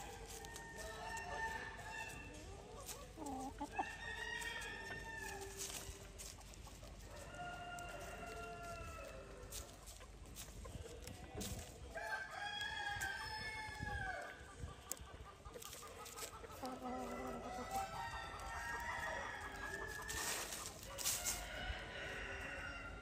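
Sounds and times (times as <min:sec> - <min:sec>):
chickens clucking: 0:00.0 - 0:23.0
rooster crowing: 0:03.7 - 0:05.5, 0:07.1 - 0:09.2, 0:12.0 - 0:14.3, 0:16.9 - 0:23.0.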